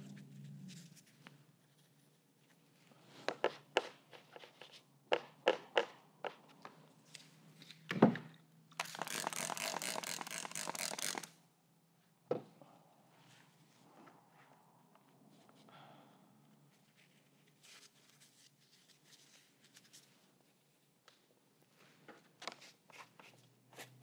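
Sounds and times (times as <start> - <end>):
aerosol spray can hissing: 8.8 - 11.3.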